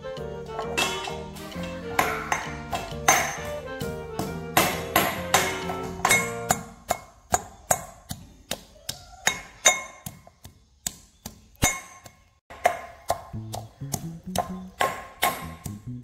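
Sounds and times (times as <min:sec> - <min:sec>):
low pitched notes: 0:00.0 - 0:06.5, 0:13.3 - 0:16.0.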